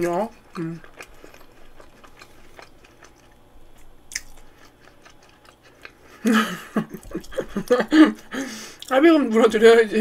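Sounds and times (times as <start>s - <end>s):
soft chewing: 0.0s - 9.0s.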